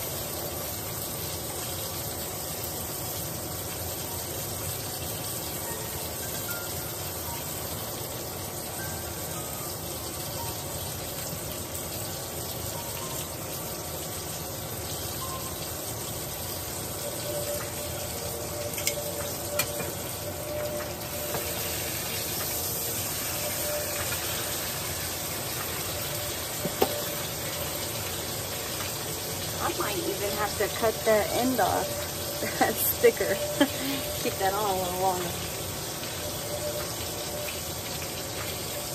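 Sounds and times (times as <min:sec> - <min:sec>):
steak sizzling in a pan: 0:00.0 - 0:38.9
metal utensils clicking: 0:18.7 - 0:20.0.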